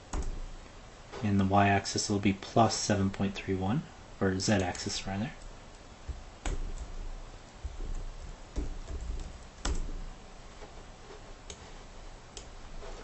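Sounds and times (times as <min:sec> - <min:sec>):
keyboard and mouse clicks: 0:07.7 - 0:10.0.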